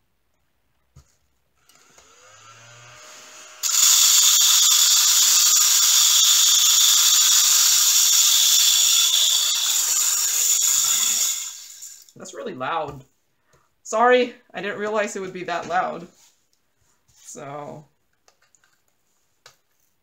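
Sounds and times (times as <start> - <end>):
mini vacuum whining: 1.6 - 12.1.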